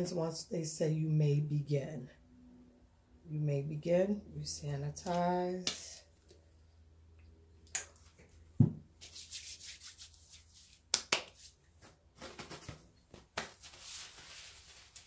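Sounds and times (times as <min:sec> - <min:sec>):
dull thump: 0:08.6 - 0:08.8
hands rubbing together: 0:09.0 - 0:11.6.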